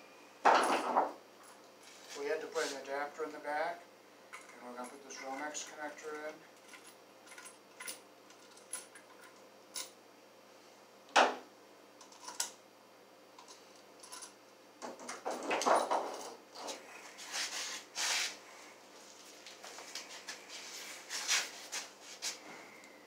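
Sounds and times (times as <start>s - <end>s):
tools and parts clicking and clattering: 0.5s - 1.7s, 4.3s - 10.0s, 12.0s - 12.6s, 13.4s - 16.8s.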